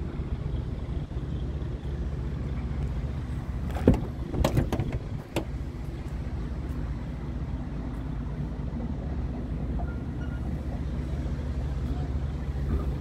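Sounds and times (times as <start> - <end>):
diesel engine idling: 0.0 - 13.0
sharp knocks and clicks: 3.7 - 5.6.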